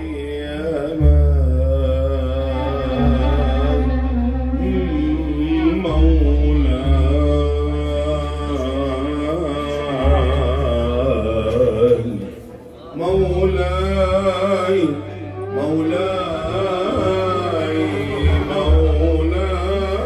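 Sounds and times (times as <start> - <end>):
deep sustained bass note: 0.0 - 11.8
live band accompaniment: 0.0 - 20.0
man singing into microphone: 0.0 - 20.0.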